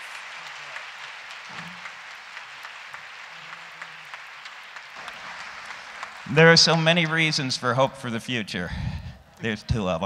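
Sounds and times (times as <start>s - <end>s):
audience clapping: 0.0s - 8.4s.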